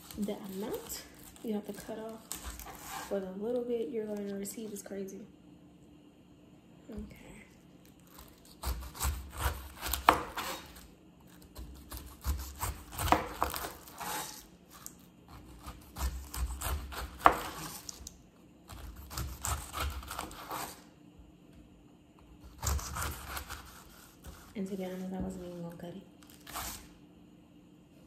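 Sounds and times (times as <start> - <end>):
knife scraping pineapple rind: 0.0 - 3.2, 8.0 - 18.1, 18.7 - 20.9, 22.4 - 25.3, 26.3 - 26.9.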